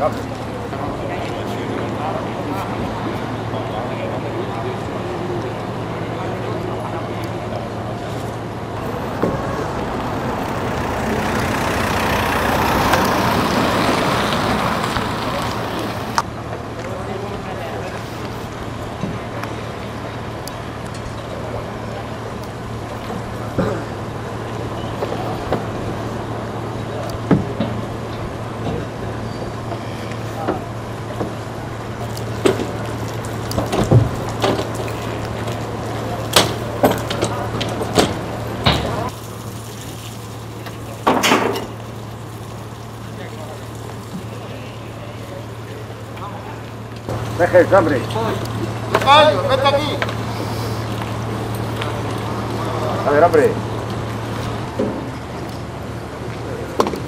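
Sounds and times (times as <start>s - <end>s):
engine humming: 4.7s - 16.9s, 17.6s - 57.0s
broad rushing noise: 7.6s - 16.2s.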